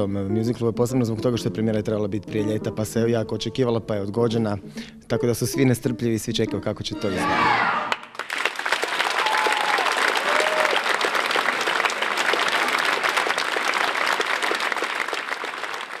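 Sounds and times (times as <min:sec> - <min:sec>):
audience applauding: 0:07.5 - 0:16.0.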